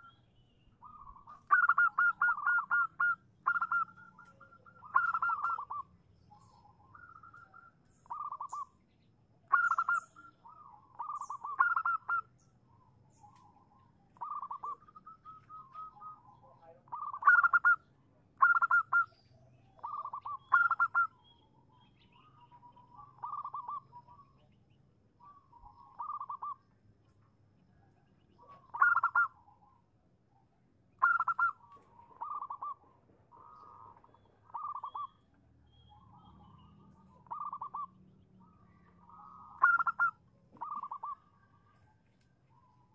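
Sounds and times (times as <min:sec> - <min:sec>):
dove cooing: 0:00.8 - 0:08.7, 0:09.5 - 0:12.3, 0:13.3 - 0:17.8, 0:18.4 - 0:19.1, 0:19.8 - 0:21.2, 0:22.7 - 0:24.5, 0:25.2 - 0:26.6, 0:28.3 - 0:29.8, 0:31.0 - 0:35.2, 0:35.9 - 0:41.7.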